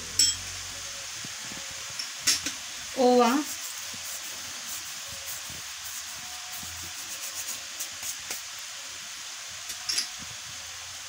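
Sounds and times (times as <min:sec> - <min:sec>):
steady background hiss: 0:00.0 - 0:11.0
palms rubbing seeds: 0:03.0 - 0:08.4.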